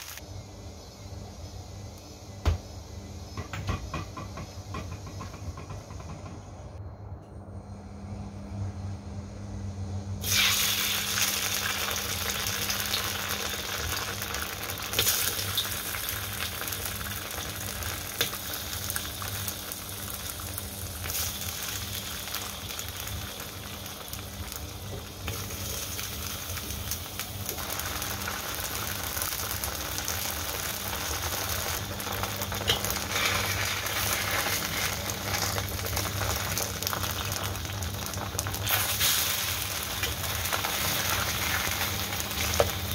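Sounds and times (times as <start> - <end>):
cake sizzling in hot oil: 0.0 - 0.3, 10.2 - 42.9
low hum: 4.6 - 10.3.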